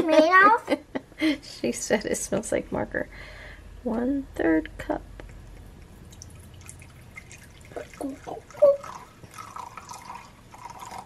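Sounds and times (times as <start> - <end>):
liquid pouring from bottle: 5.3 - 11.0.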